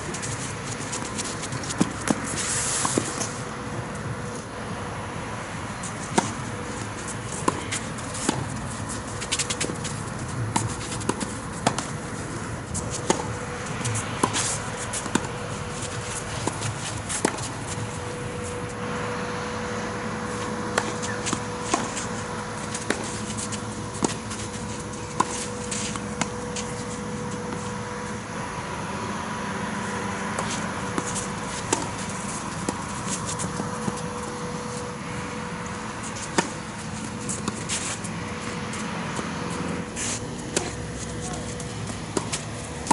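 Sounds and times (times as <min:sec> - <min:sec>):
racket hitting tennis ball: 0:00.0 - 0:03.4, 0:05.9 - 0:18.6, 0:19.6 - 0:28.0, 0:30.4 - 0:42.9
outdoor background noise: 0:00.0 - 0:42.9
tennis ball bouncing: 0:00.1 - 0:03.4, 0:06.1 - 0:12.1, 0:12.8 - 0:18.6, 0:19.6 - 0:27.9, 0:30.4 - 0:34.8, 0:36.0 - 0:37.8, 0:38.4 - 0:42.9.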